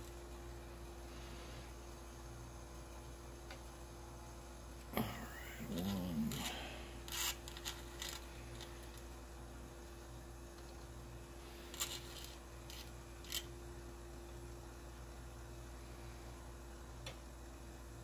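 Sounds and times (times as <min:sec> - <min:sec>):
steady low hum: 0:00.0 - 0:18.0
tweezers clicking and scraping: 0:11.7 - 0:13.5.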